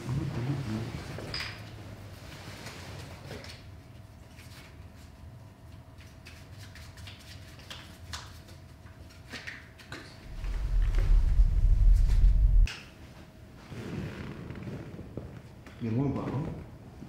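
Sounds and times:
faint steady hum: 10.2 - 12.7
loud deep rumble: 10.2 - 12.7.

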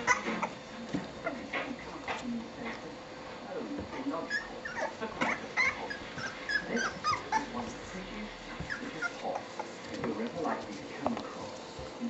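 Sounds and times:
puppies whimpering and squeaking: 0.0 - 1.5, 4.2 - 8.0, 8.6 - 10.0.

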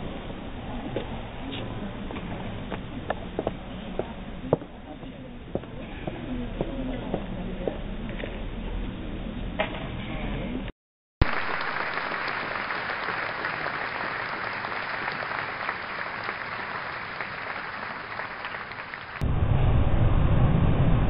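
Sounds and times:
audience applauding: 11.2 - 19.2.

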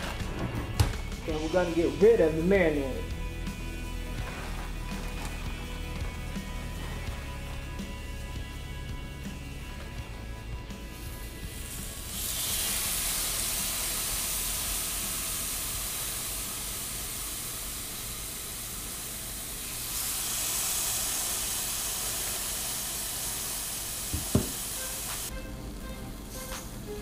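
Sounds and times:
chicken sizzling on a grill: 10.9 - 25.3.

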